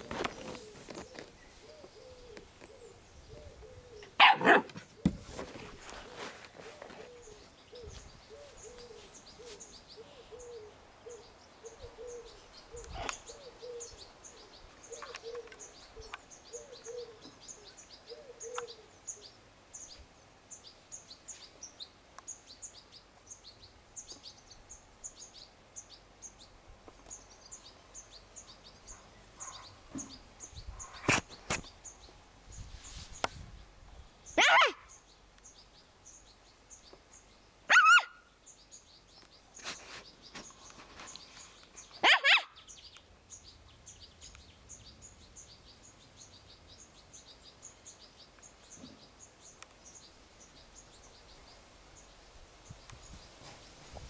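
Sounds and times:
small birds chirping: 0:00.0 - 0:54.0
puppy barking: 0:04.2 - 0:04.8, 0:34.4 - 0:34.8, 0:37.7 - 0:38.2, 0:42.0 - 0:42.6.

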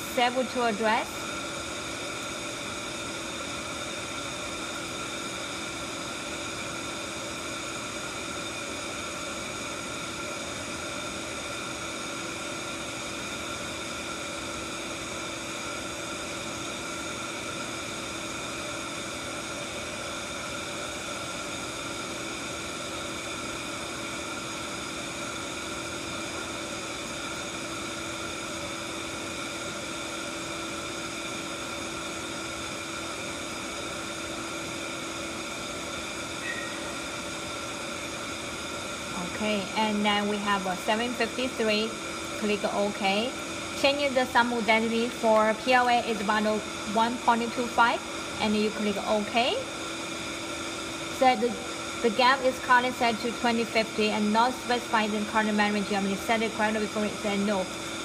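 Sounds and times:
fan-like hiss of lab equipment: 0:00.0 - 0:58.0
steady whining tones: 0:34.6 - 0:58.0.

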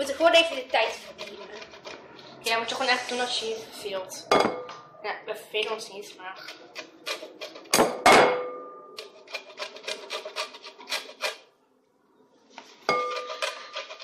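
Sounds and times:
peel grated on metal grater: 0:00.0 - 0:02.0, 0:09.2 - 0:11.4.

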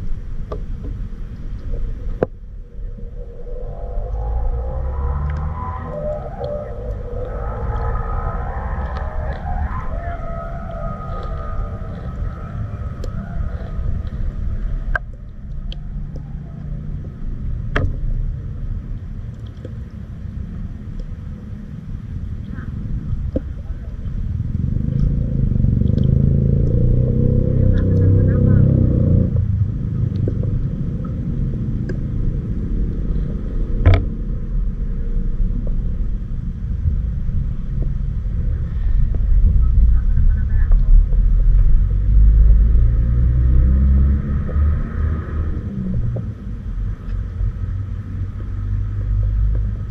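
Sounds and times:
river water rumbling: 0:00.0 - 0:49.9.

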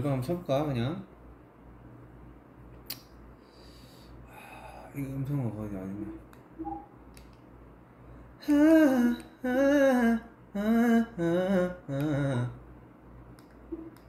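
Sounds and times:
man humming: 0:08.4 - 0:12.6.

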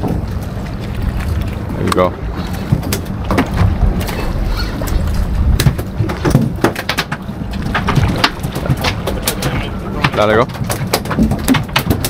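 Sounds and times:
boat low rumble: 0:00.0 - 0:12.0
knocks and clatter on board: 0:01.9 - 0:12.0.

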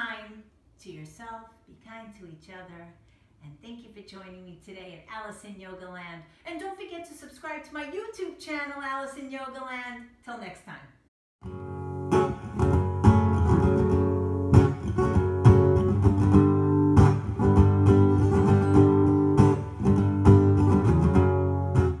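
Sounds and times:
acoustic guitar strumming: 0:11.4 - 0:22.0.

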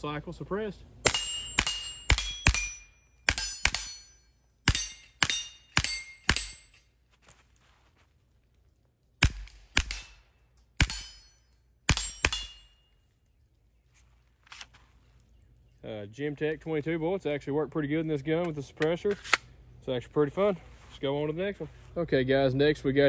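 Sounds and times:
suppressed pistol shots: 0:01.0 - 0:04.0, 0:09.2 - 0:10.2
short metallic ring: 0:01.0 - 0:07.0, 0:10.8 - 0:12.9.

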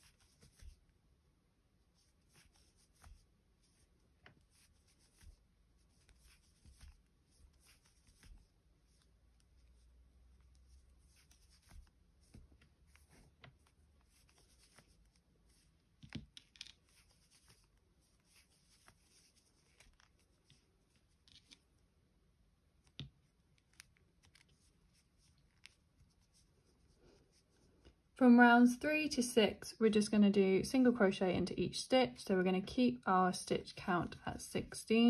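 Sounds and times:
crochet hook working yarn: 0:00.0 - 0:00.9, 0:01.9 - 0:21.7.

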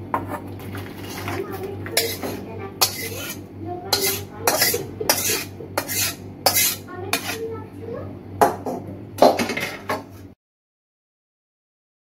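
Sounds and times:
metal spatula scraping metal pan: 0:02.0 - 0:07.5.

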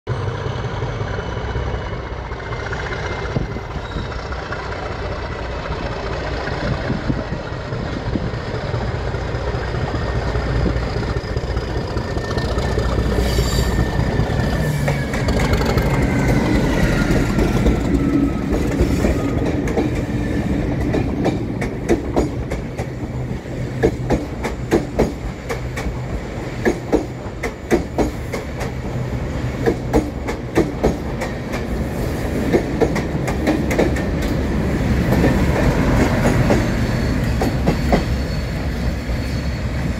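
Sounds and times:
diesel locomotive engine: 0:00.1 - 0:39.9
wheels clacking over rail joints: 0:02.2 - 0:38.6
high whistling tone: 0:03.0 - 0:04.6, 0:10.2 - 0:19.4, 0:36.4 - 0:39.9.

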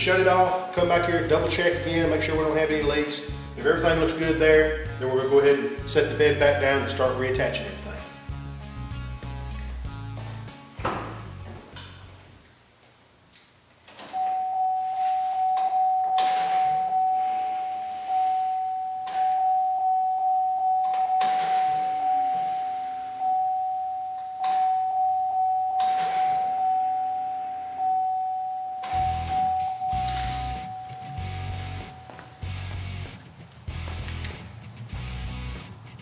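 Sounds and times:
dashboard warning chime dinging: 0:14.1 - 0:33.0.

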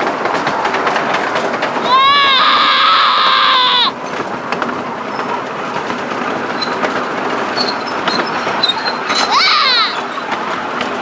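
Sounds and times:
miniature train cars rattling: 0:00.0 - 0:11.0
child shrieking: 0:01.8 - 0:03.9, 0:09.2 - 0:10.1.

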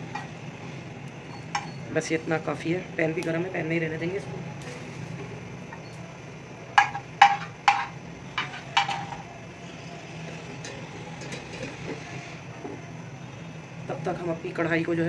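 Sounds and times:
metal cookware clanking: 0:00.0 - 0:00.4, 0:01.2 - 0:01.9, 0:06.7 - 0:09.3, 0:10.5 - 0:12.0.

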